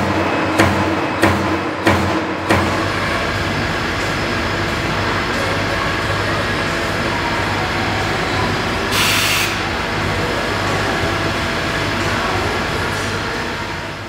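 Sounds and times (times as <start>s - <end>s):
punching machine clatter: 0.0s - 6.0s
machine hum: 0.0s - 14.0s.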